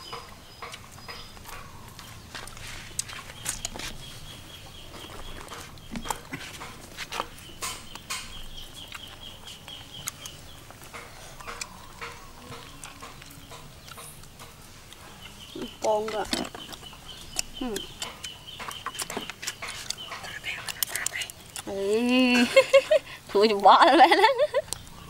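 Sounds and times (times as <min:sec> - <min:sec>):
chickens clucking: 0:00.0 - 0:25.0.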